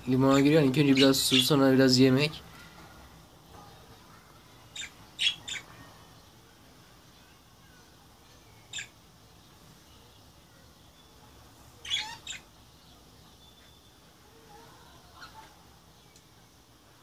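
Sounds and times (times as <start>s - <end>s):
budgerigars chirping: 4.8s - 5.7s, 11.8s - 12.5s.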